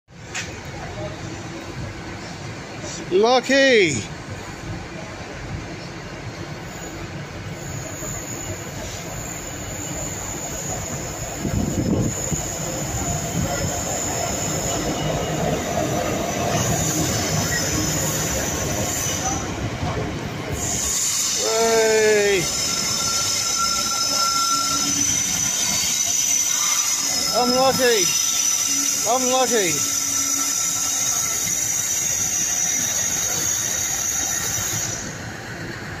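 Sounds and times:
diesel locomotive passing: 0.1s - 36.0s
train wheels rumbling on track: 0.1s - 36.0s.

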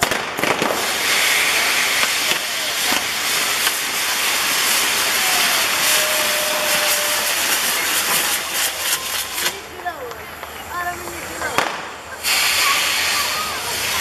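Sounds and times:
firework pops: 0.0s - 4.8s, 6.8s - 12.8s
fireworks hissing: 0.0s - 14.0s.

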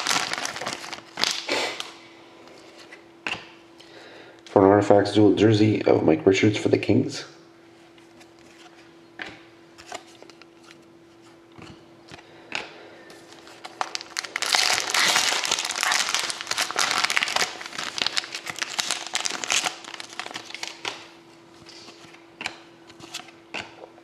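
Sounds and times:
foil wrapper crinkling: 0.0s - 1.9s, 13.2s - 21.1s.

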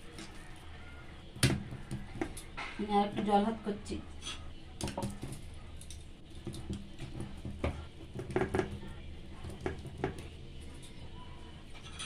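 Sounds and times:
taps against metal plate: 6.4s - 10.3s.

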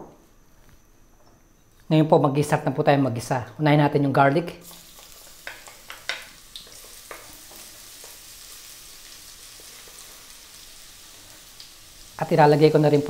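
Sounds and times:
garlic sizzling in oil: 4.6s - 13.0s.

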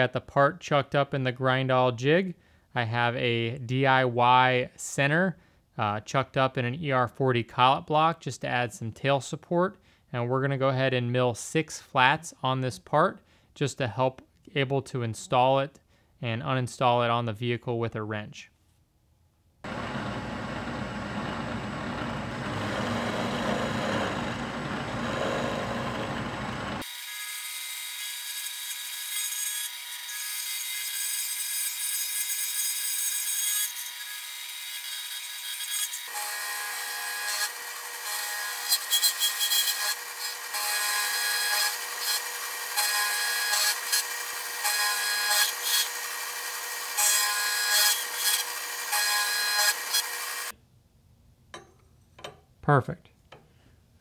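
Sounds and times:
machine whine: 19.7s - 26.8s
milling machine cutting metal: 19.7s - 27.1s, 36.1s - 50.5s.

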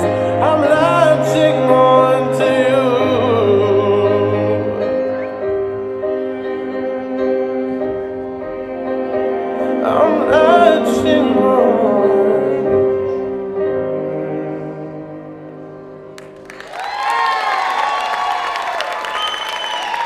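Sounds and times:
person singing: 0.0s - 15.9s
slow song with held chords: 0.0s - 16.5s
applause and cheering: 16.2s - 20.0s.

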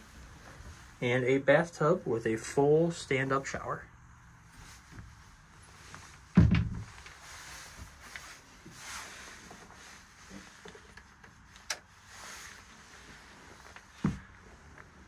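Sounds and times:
faint rustling: 0.0s - 2.6s, 4.1s - 15.0s
heavy dull thump: 6.3s - 6.9s.

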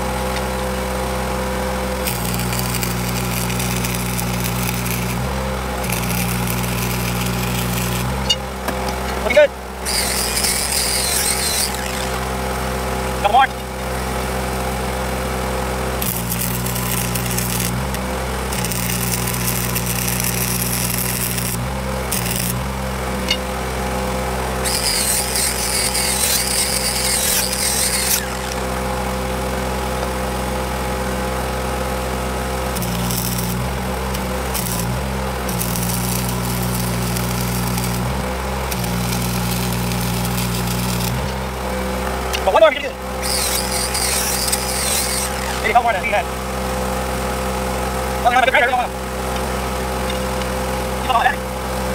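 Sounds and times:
steady engine hum: 0.0s - 51.9s
arc welding crackling hiss: 1.9s - 8.4s, 9.8s - 12.3s, 16.0s - 23.3s, 24.6s - 28.8s, 32.7s - 41.6s, 43.2s - 46.1s.

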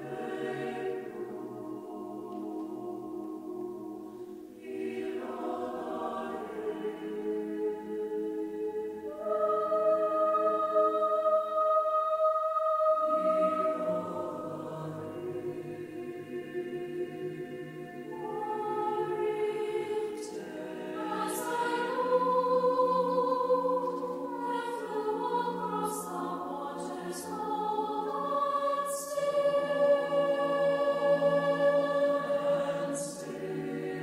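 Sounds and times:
mixed choir singing: 0.0s - 34.0s.

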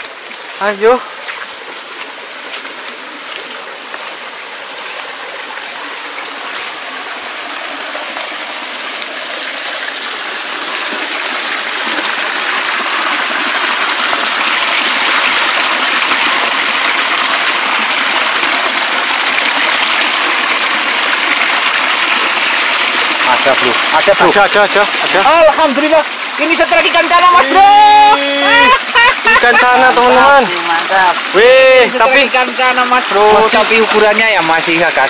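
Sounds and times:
footsteps through grass: 0.0s - 9.2s
stream rushing over stones: 0.0s - 35.0s.

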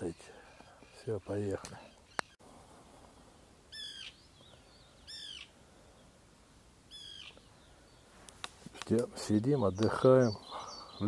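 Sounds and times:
gulls calling: 0.0s - 2.4s, 3.7s - 5.6s.

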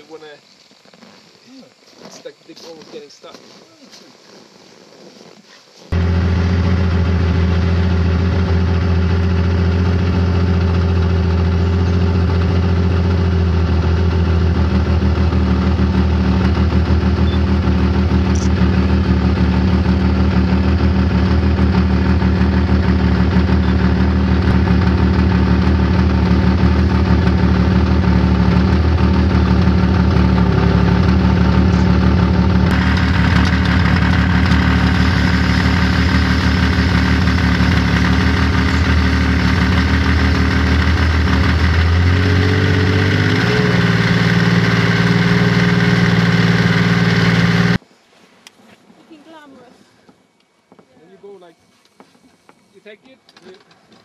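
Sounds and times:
snowmobile engine running: 5.9s - 47.8s.

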